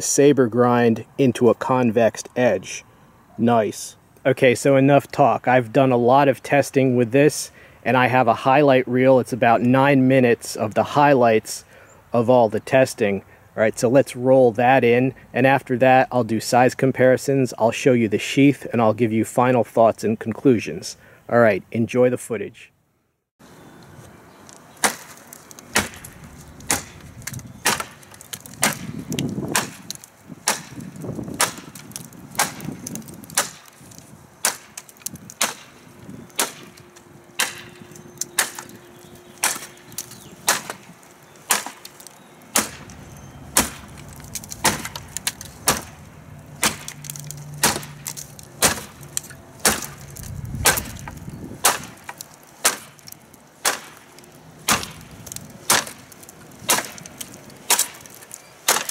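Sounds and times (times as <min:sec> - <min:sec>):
wooden slats splintering: 0:24.5 - 0:58.9
knife chopping into dry wood: 0:24.8 - 0:36.8, 0:37.4 - 0:38.8, 0:39.4 - 0:46.0, 0:46.6 - 0:58.9.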